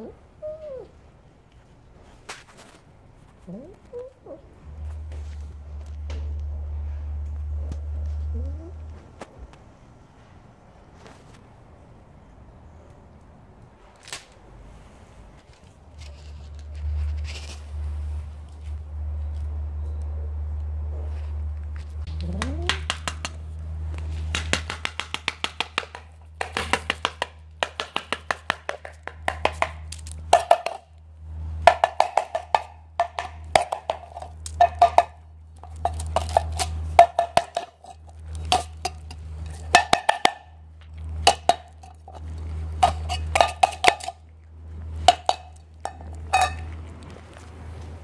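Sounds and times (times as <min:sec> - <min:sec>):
cat beast-like noise: 0:03.4 - 0:04.8, 0:22.0 - 0:23.0
cat chewing wet food: 0:26.0 - 0:48.0.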